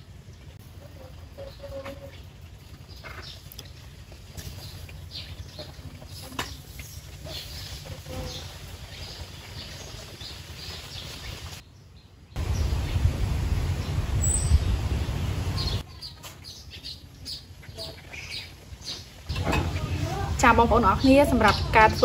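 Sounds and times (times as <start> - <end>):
outdoor background hiss: 0.0 - 22.0
small birds chirping: 0.0 - 22.0
loud low rumbling noise: 12.4 - 15.8.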